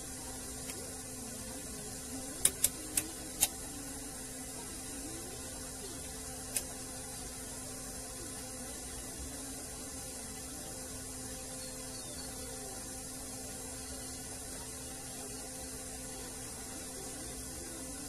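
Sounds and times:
low hum and hiss: 0.0 - 18.0
multimeter probes clicking: 2.3 - 3.7, 6.0 - 6.8.

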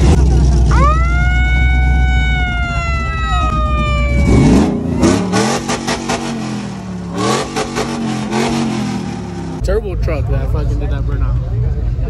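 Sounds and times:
truck engine revving: 0.0 - 12.0
megaphone siren wail: 0.7 - 5.2.

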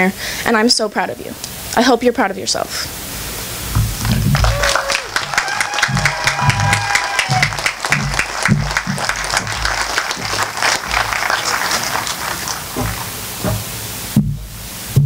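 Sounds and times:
person cheering: 4.0 - 13.2
crowd applauding: 4.0 - 13.5.

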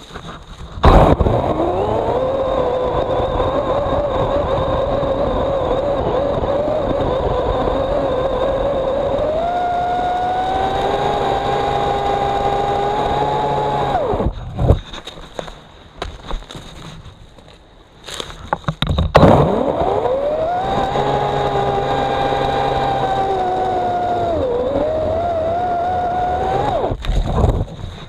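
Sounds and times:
electric chainsaw cutting log: 0.8 - 14.3, 19.2 - 27.3.

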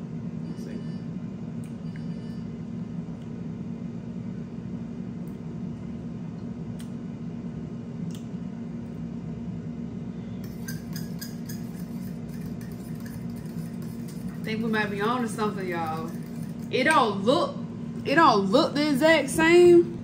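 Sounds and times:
low mechanical hum: 0.0 - 20.0
metal fork clinking on dish: 10.4 - 15.0, 15.6 - 16.7.

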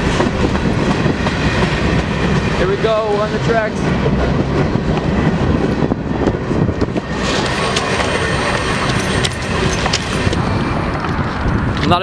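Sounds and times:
train wheels rumbling on rails: 0.0 - 12.0
faint high wheel squeal: 7.2 - 10.9.

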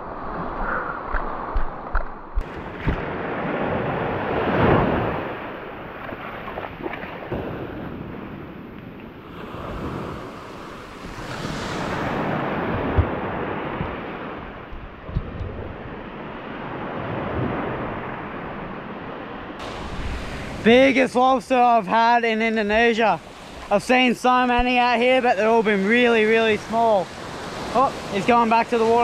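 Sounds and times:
wind on microphone: 0.0 - 21.1
small waves washing on beach: 0.0 - 29.0.

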